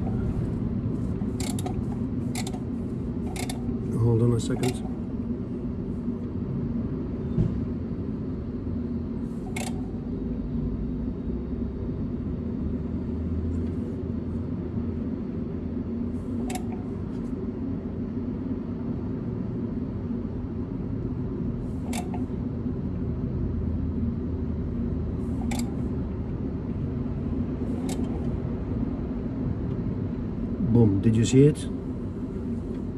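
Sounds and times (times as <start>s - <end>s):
low rumble and hum: 0.0s - 32.9s.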